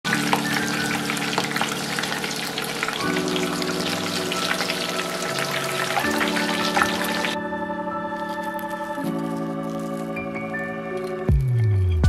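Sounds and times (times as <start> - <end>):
food deep-frying in oil: 0.0 - 7.4
background music of held chords: 0.1 - 12.0.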